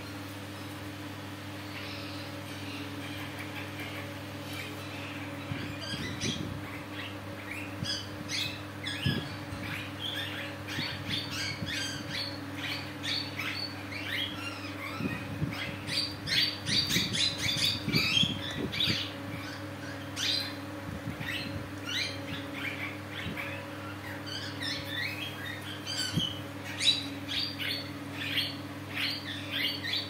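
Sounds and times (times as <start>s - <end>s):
steady low hum: 0.0s - 30.0s
parakeets chirping and squawking: 1.6s - 30.0s.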